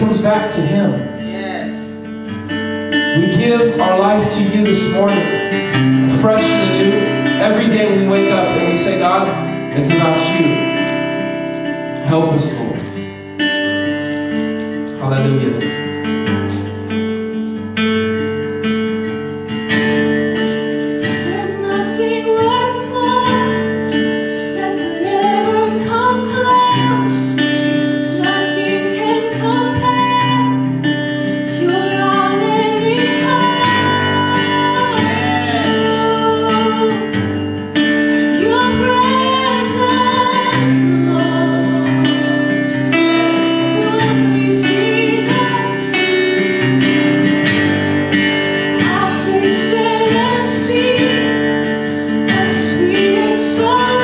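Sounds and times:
acoustic guitar strumming: 0.0 - 54.0
woman singing: 20.5 - 47.2, 48.7 - 54.0.

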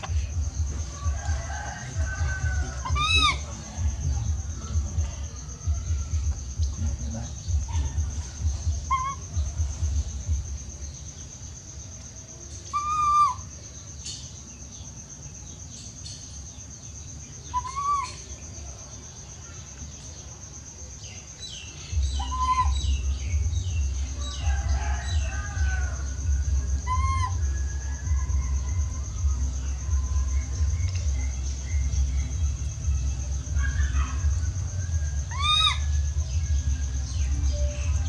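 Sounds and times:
baby monkey calling: 2.7 - 3.5, 5.8 - 9.7, 12.6 - 13.5, 17.5 - 18.4, 22.0 - 23.8, 26.7 - 27.5, 35.2 - 36.5.

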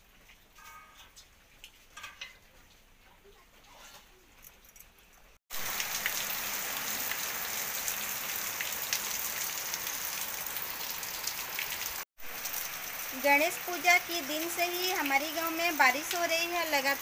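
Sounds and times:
heavy rain on concrete: 5.5 - 17.0
water drips and splashes: 5.5 - 17.0.

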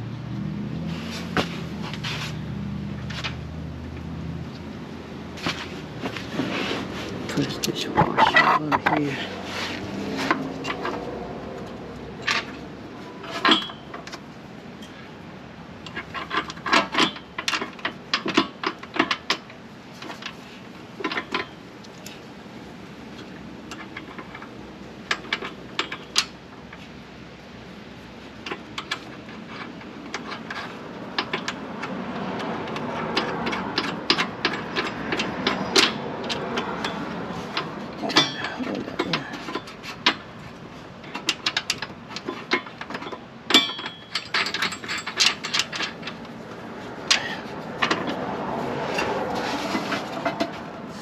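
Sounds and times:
small clicks and knocks of parts: 21.0 - 22.2, 23.1 - 26.8, 28.4 - 48.2.

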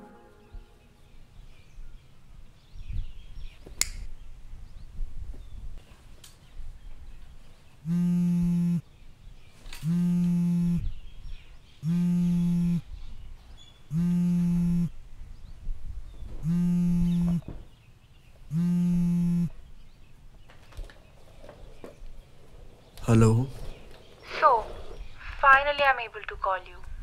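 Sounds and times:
phone vibrating: 7.8 - 8.8, 9.8 - 11.0, 11.8 - 12.9, 13.9 - 15.0, 16.4 - 17.5, 18.5 - 19.6.

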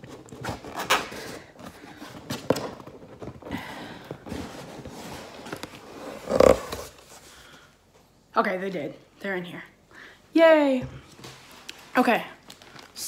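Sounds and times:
cardboard box scraping and rustling: 4.3 - 7.2.

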